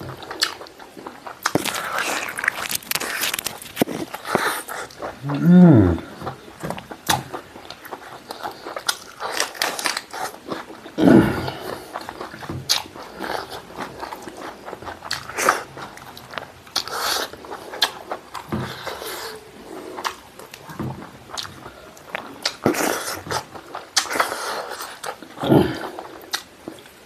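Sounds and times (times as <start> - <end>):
person chewing: 0.0 - 27.0.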